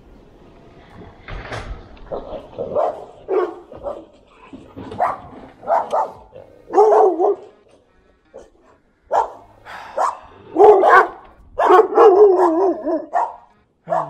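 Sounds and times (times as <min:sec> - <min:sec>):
dog barking: 0:02.6 - 0:04.1, 0:04.8 - 0:07.5, 0:09.1 - 0:14.0.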